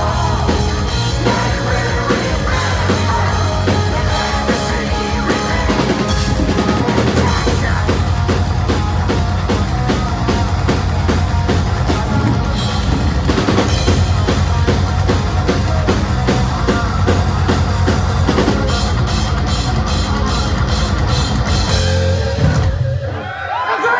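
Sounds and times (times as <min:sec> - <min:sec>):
heavy metal band playing live: 0:00.0 - 0:23.9.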